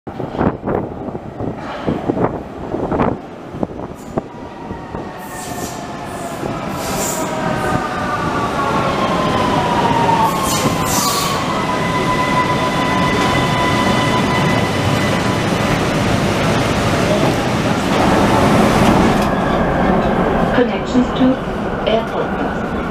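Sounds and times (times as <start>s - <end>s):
train wheels rumbling: 0.1s - 22.9s
train brakes whining: 5.0s - 7.4s, 10.2s - 15.2s.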